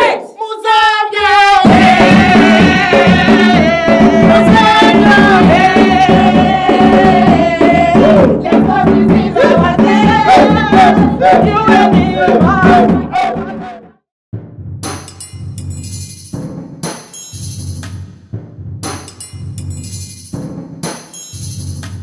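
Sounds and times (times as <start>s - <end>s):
group of voices singing: 0.0s - 14.0s
steady drum beat: 1.6s - 13.8s, 14.4s - 22.0s.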